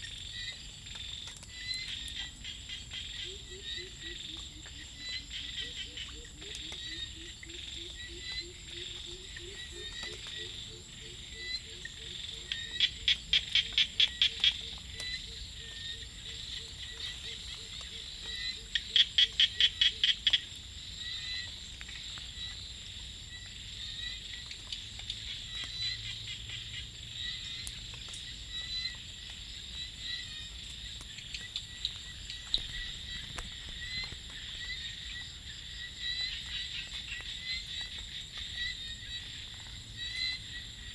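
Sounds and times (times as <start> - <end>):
frog calls: 0.0 - 40.9
high insect whine: 25.2 - 40.9.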